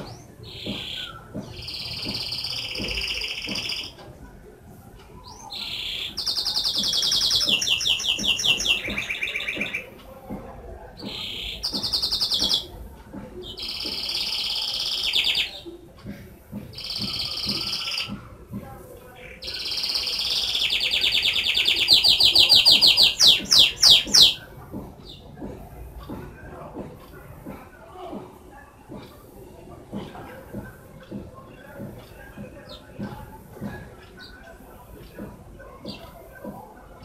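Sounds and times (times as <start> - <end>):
canary singing trills: 0.0 - 4.0, 5.2 - 9.9, 11.0 - 12.7, 13.4 - 15.6, 19.2 - 25.2.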